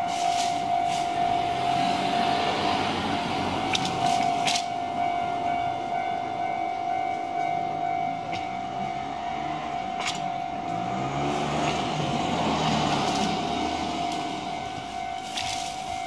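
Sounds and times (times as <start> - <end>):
level crossing warning bell: 0.0 - 16.0
train rumble: 0.0 - 16.0.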